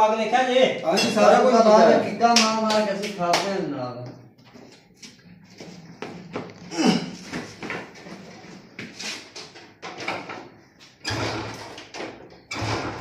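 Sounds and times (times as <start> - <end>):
metal parts clunking and rattling: 9.3 - 13.0.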